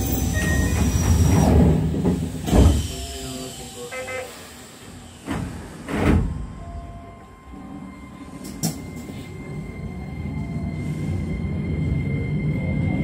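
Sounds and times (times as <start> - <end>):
electric train running slowly: 0.0 - 13.0
electronic beep: 6.6 - 11.3.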